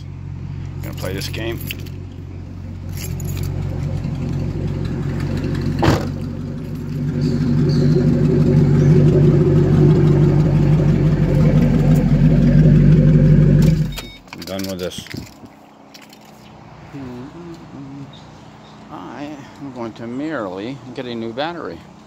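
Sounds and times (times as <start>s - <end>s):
car engine revving: 0.0s - 14.0s
thump: 5.8s - 6.2s.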